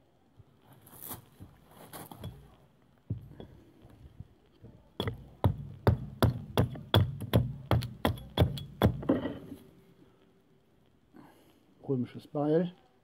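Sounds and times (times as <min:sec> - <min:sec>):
axe chopping wood: 0:05.0 - 0:09.4.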